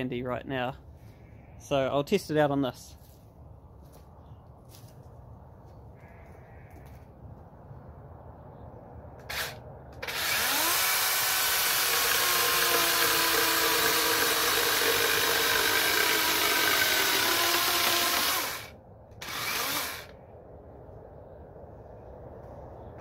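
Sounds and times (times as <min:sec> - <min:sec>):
electric chainsaw cutting wood: 0:09.2 - 0:20.2.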